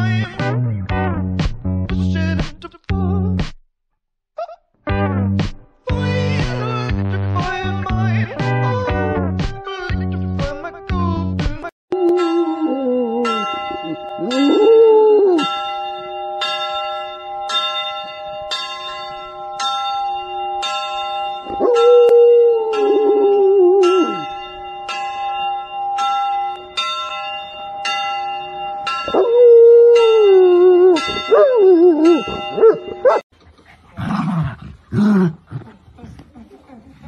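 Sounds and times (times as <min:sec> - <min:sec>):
dog howling: 0:12.0 - 0:15.5, 0:21.5 - 0:24.3, 0:29.1 - 0:33.2
church bells ringing: 0:12.0 - 0:33.2.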